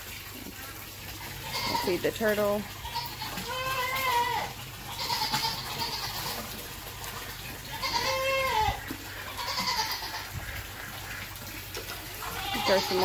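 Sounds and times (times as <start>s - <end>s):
goat bleating: 1.4s - 2.1s, 2.8s - 6.6s, 7.6s - 10.3s, 12.2s - 13.0s.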